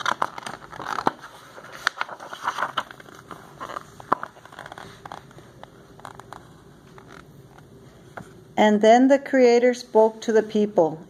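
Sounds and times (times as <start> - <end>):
book pages turning: 0.0 - 8.4.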